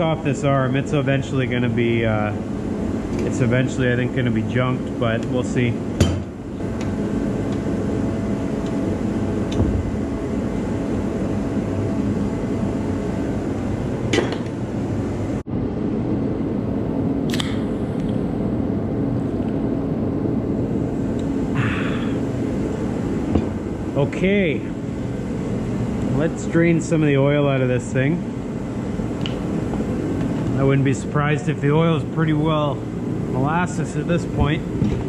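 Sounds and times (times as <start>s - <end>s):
low machine hum and rumble: 0.0s - 35.0s.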